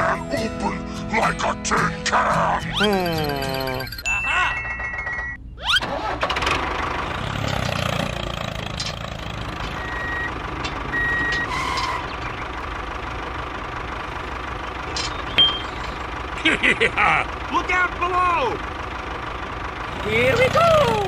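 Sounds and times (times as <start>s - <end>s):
tractor engine running: 0.0s - 21.0s
reversing beeps: 9.8s - 11.9s.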